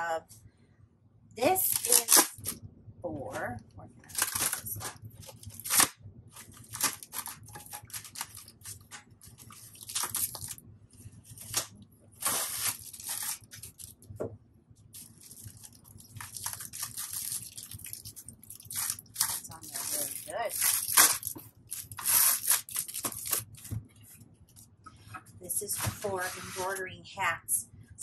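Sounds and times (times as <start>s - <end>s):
polystyrene foam creaking and scraping: 4.0s - 14.0s, 14.9s - 23.6s, 25.5s - 27.0s.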